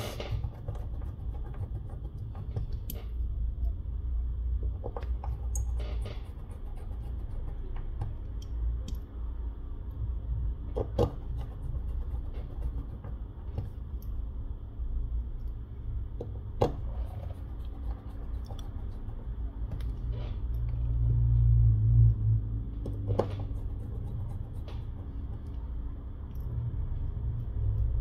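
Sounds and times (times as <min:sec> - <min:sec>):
low steady rumble: 0:00.0 - 0:28.0
fingertips tapping and clicking: 0:00.2 - 0:03.7, 0:16.2 - 0:20.0.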